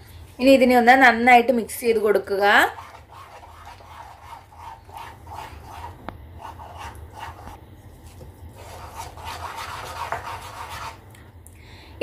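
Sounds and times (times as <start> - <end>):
spoon stirring batter in a bowl: 2.5 - 11.1.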